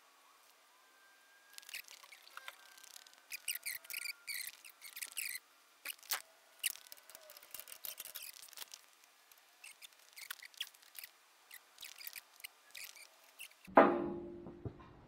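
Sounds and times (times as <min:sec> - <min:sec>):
hand tools and metal parts clinking: 0:01.6 - 0:08.9.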